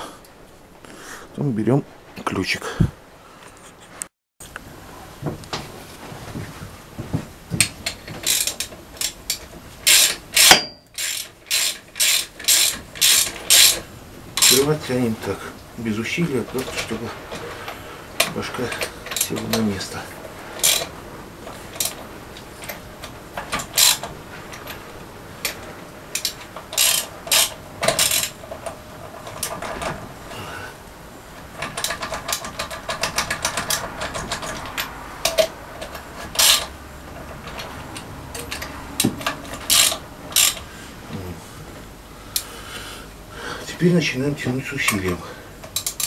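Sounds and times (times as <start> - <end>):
ratchet wrench clicking: 7.8 - 13.8, 14.4 - 14.7, 20.6 - 20.9, 23.6 - 24.1, 25.4 - 28.4, 31.8 - 36.7, 38.3 - 40.7, 45.7 - 46.0
metal clicks and knocks: 16.4 - 30.1, 31.4 - 40.7.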